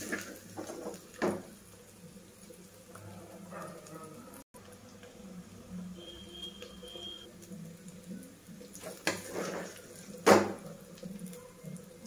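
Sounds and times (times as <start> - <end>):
metal spatula scraping a pan: 8.8 - 9.9.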